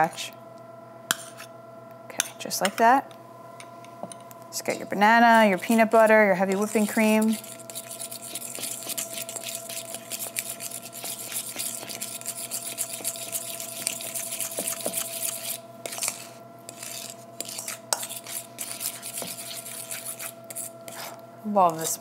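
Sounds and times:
steady electrical hum: 0:00.0 - 0:22.0
whisk scraping metal bowl: 0:04.7 - 0:22.0.

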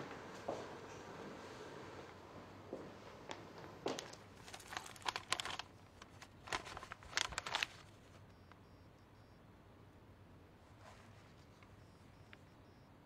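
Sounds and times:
paper pages rustling: 0:03.3 - 0:08.2.

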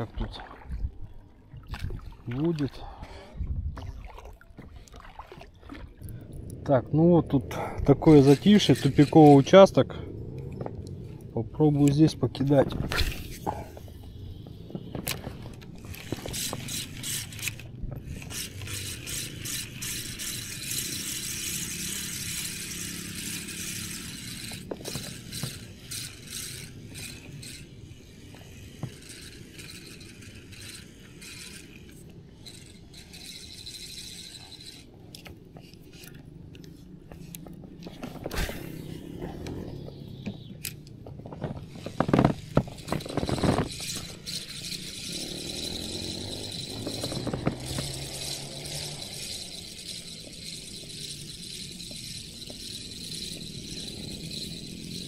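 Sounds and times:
fishing reel whirring: 0:05.1 - 0:55.0
handling clicks and knocks: 0:40.2 - 0:44.4.

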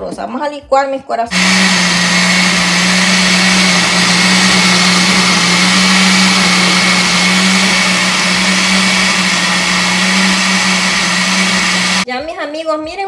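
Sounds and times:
blender motor running: 0:01.3 - 0:12.1.

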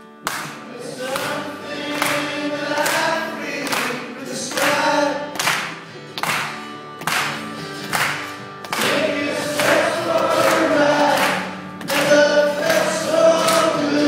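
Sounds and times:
acoustic guitar strumming: 0:00.0 - 0:14.0
person singing: 0:00.6 - 0:05.4, 0:08.8 - 0:14.0.

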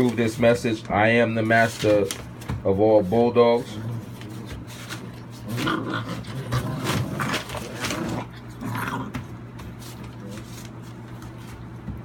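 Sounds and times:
puppies growling: 0:03.1 - 0:10.7.

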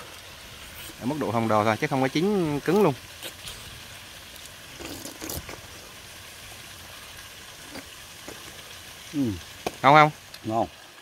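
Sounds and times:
stream water rushing: 0:00.0 - 0:11.0
person slurping egg: 0:03.2 - 0:06.0.

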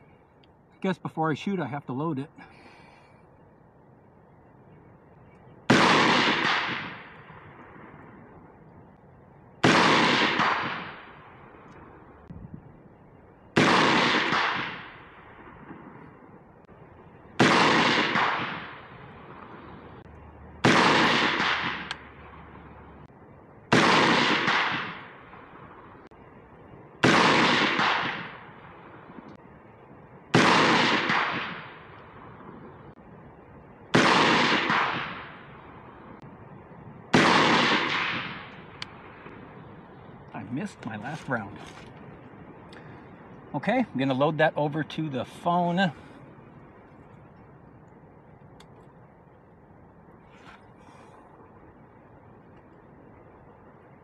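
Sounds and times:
rifle shots: 0:05.7 - 0:07.6, 0:09.6 - 0:11.3, 0:13.6 - 0:16.0, 0:17.4 - 0:19.6, 0:20.6 - 0:22.4, 0:23.7 - 0:25.7, 0:27.0 - 0:28.6, 0:30.3 - 0:31.9, 0:33.9 - 0:35.5, 0:37.1 - 0:39.4.

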